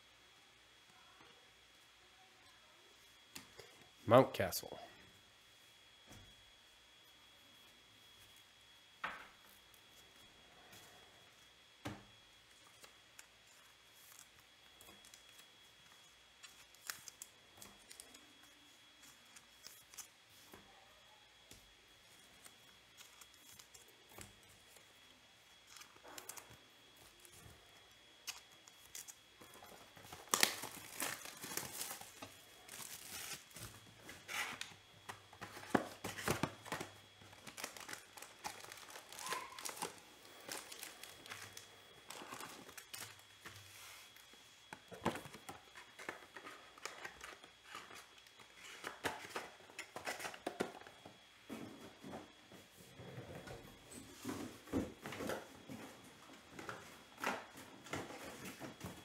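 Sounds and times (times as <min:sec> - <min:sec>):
card packs crinkling: 0:12.5 - 0:20.5, 0:22.0 - 0:24.9, 0:25.6 - 0:50.8.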